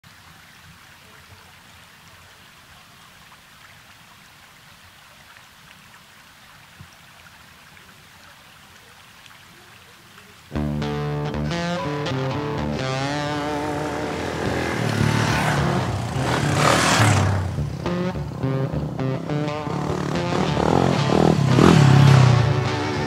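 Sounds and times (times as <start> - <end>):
music: 10.5 - 16.2, 17.5 - 23.0.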